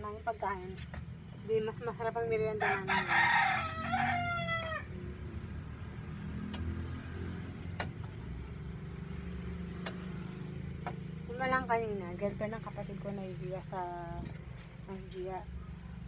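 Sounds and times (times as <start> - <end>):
rooster crowing: 2.5 - 5.1.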